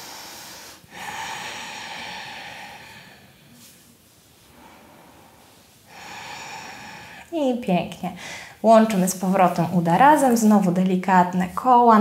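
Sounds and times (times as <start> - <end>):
woman breathing slowly: 0.0 - 7.5, 8.1 - 8.6.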